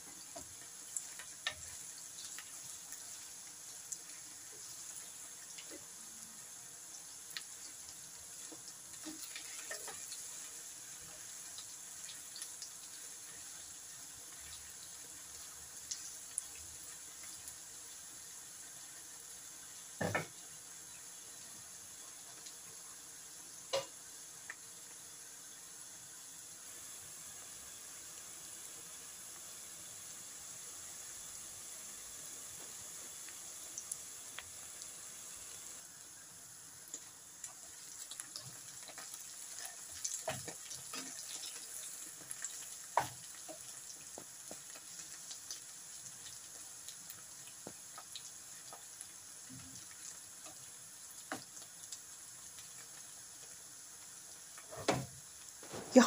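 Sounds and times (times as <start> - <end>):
vegetable slices sizzling in oil: 0.0 - 56.0
oil popping and crackling: 36.9 - 56.0.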